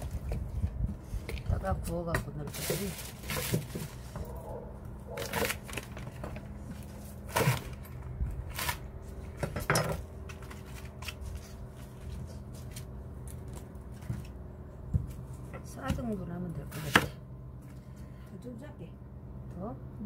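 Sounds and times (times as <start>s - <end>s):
knife chopping on wooden board: 16.7s - 17.2s.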